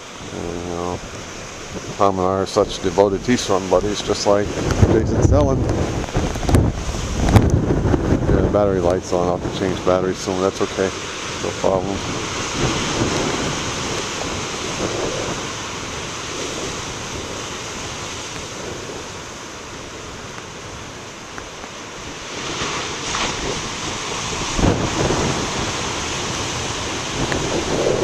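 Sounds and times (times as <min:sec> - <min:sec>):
waves crashing on rocks: 0:00.0 - 0:28.0
wind buffeting microphone: 0:00.0 - 0:28.0.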